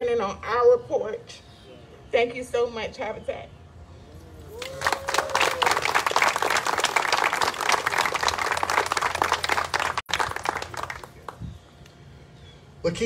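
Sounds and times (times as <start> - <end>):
small crowd applauding: 4.5 - 11.5.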